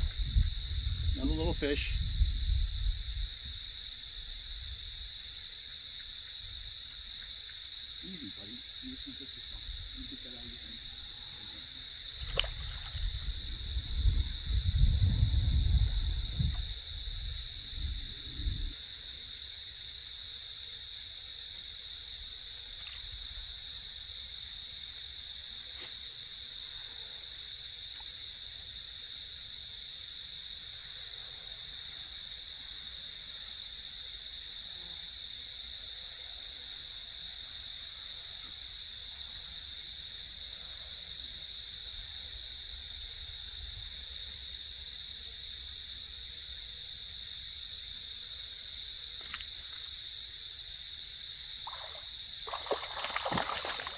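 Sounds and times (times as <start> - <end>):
insect high-pitched trill: 0.0 - 53.9
insect high chirps: 46.6 - 53.9.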